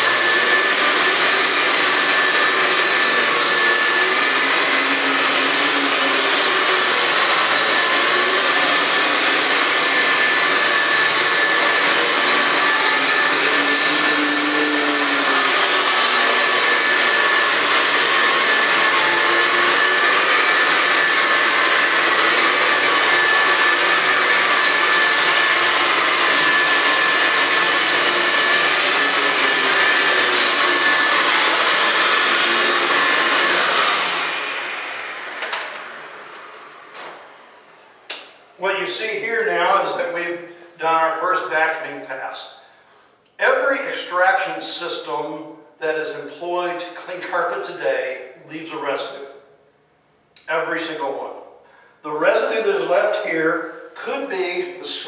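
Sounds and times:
carpet cleaner motor running: 0.0 - 37.6.

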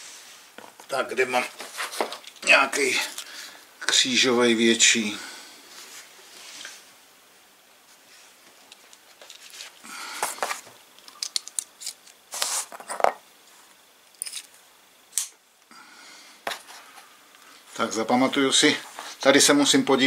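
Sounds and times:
metal bits clicking and clattering: 11.0 - 12.2, 14.1 - 14.6.

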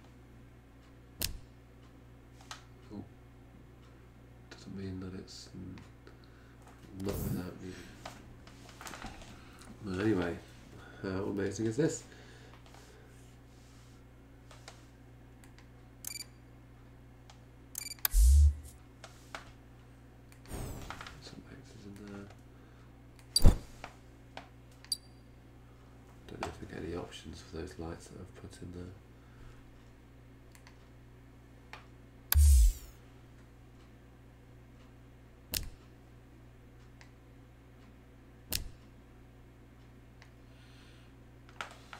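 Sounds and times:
low room hum: 0.0 - 41.9
short clicks: 1.2 - 1.4, 15.4 - 16.3, 17.7 - 18.7, 32.3 - 32.9, 35.5 - 35.8, 38.5 - 38.8
loud thump with a hiss: 20.5 - 21.0.

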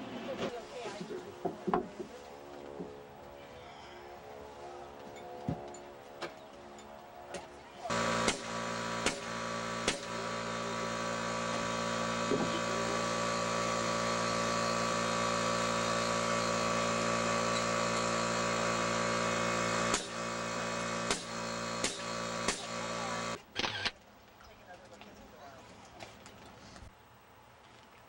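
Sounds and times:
air compressor humming: 7.8 - 23.9
nail gun shots: 8.0 - 10.5, 19.8 - 20.3, 21.0 - 24.0.

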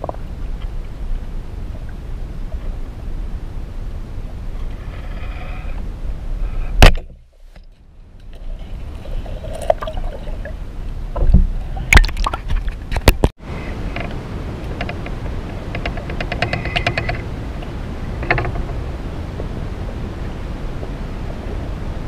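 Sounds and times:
low rumble of moving water: 0.0 - 22.0
underwater clicks and knocks: 11.1 - 13.3, 13.9 - 18.8.

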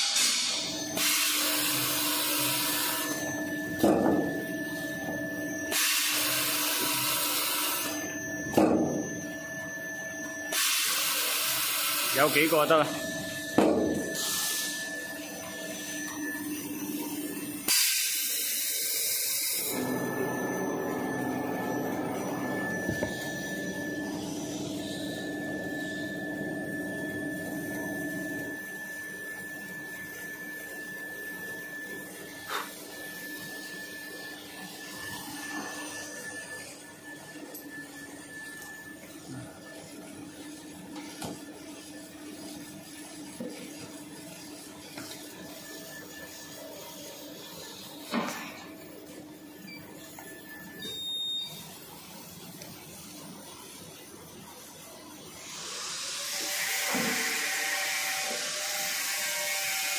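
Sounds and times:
machine humming: 19.6 - 29.1.

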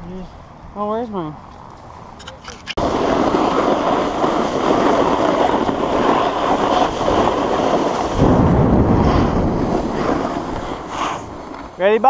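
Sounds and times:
low wind buffeting: 0.0 - 12.0
wind on microphone: 2.6 - 12.0
snowboard scraping over snow: 2.8 - 12.0.

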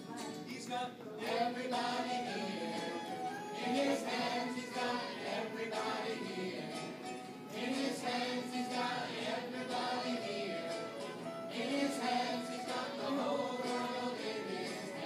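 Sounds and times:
young girls singing together: 7.5 - 15.0.

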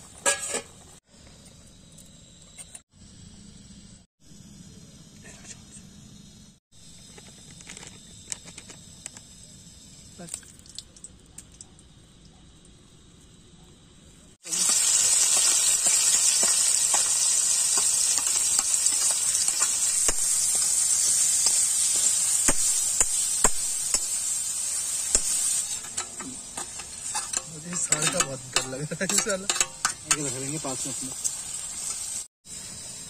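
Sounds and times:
metal spatula scraping a wok: 0.1 - 0.8, 24.8 - 30.7
onions sizzling in hot oil: 14.4 - 33.0.

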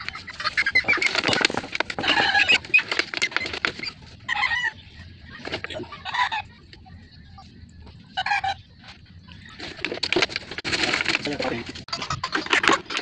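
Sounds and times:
chicken wings flapping: 0.0 - 4.0
chicken squawking: 0.0 - 5.0, 5.8 - 6.6, 8.1 - 8.7.

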